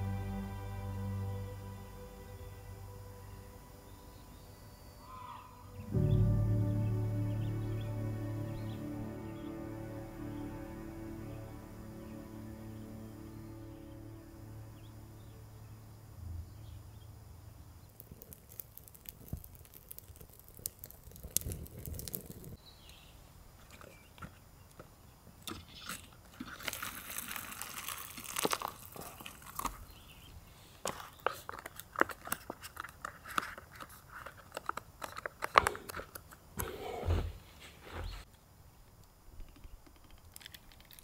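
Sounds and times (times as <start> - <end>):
handling clicks and crinkling: 17.9 - 22.6, 23.6 - 29.9, 30.7 - 36.7, 38.3 - 41.0.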